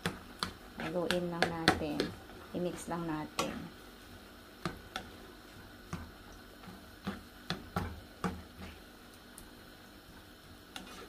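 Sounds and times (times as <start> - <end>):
spatula knocking on frying pan: 0.0 - 3.6, 4.6 - 5.1, 5.9 - 6.2, 7.0 - 8.6.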